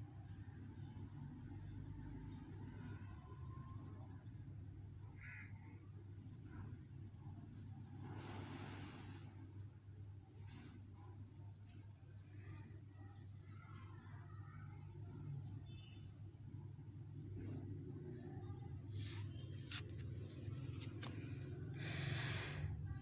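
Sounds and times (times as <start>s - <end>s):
faint low hum: 0.0s - 23.0s
bird chirping: 15.6s - 16.2s.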